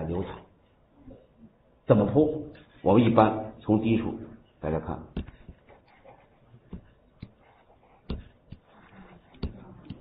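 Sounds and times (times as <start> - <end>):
low room noise: 0.0 - 10.0
pen tapping on tablet: 5.2 - 5.9, 6.7 - 7.4, 8.0 - 10.0.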